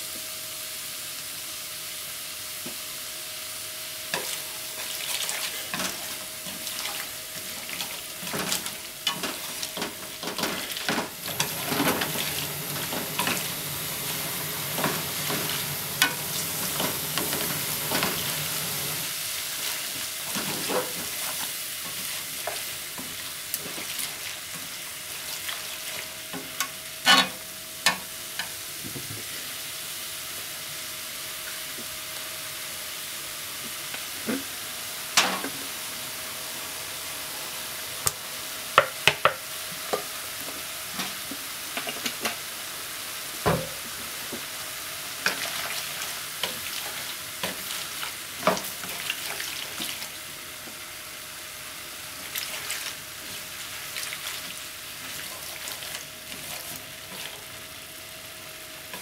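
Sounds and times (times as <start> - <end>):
noodles sizzling in frying pan: 0.0 - 59.0
chopsticks scraping pan: 27.1 - 27.4.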